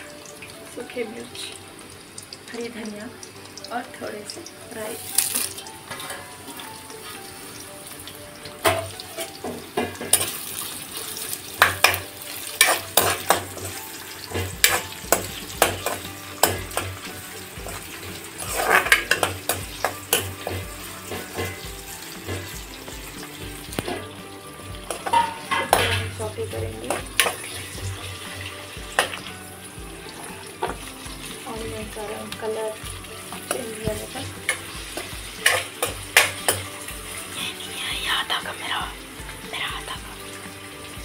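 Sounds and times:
food sizzling in hot oil: 0.0 - 41.0
spatula scraping pan: 5.1 - 7.7, 8.4 - 24.2, 24.8 - 29.3, 33.4 - 37.4.

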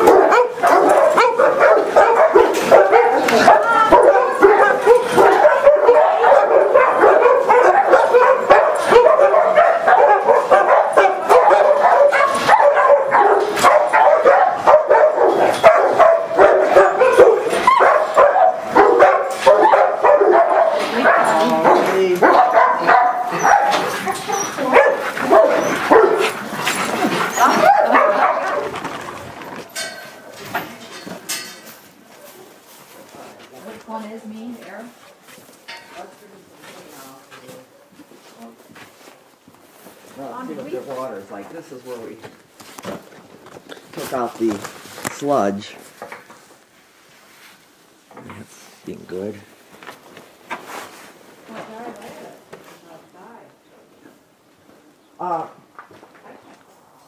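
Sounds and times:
dogs barking: 0.0 - 28.9.

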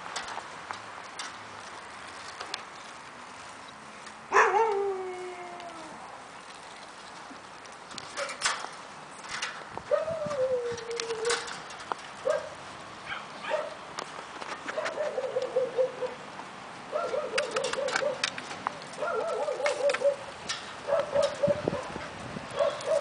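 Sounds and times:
sharp clicks and rattles: 6.7 - 9.9, 10.8 - 12.5
young dog whining: 9.9 - 11.5, 19.0 - 20.2.

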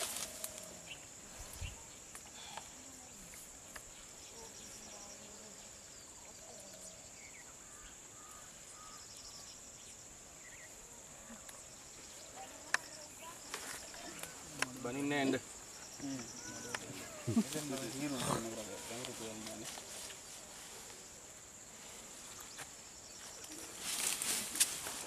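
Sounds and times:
crickets droning: 0.0 - 25.0
murmuring voices: 11.0 - 22.0.

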